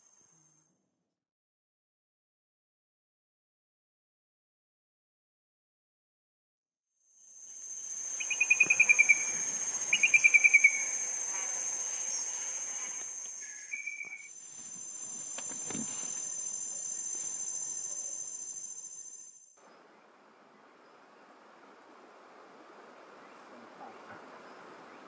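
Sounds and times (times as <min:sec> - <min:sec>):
insect trilling: 0:07.2 - 0:19.6
bird descending trills: 0:07.6 - 0:19.5
whistled note: 0:07.6 - 0:19.6.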